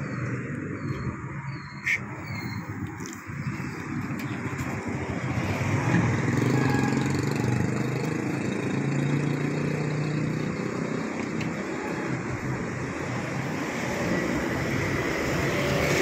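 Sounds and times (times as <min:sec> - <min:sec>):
traffic hum: 0:00.0 - 0:16.0
motorcycle engine passing: 0:05.2 - 0:10.8.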